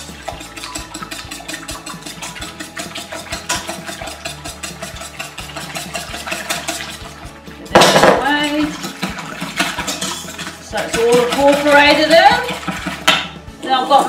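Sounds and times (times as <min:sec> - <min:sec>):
wire whisk beating in metal bowl: 0:00.0 - 0:14.0
bowl clattering down: 0:07.7 - 0:11.9.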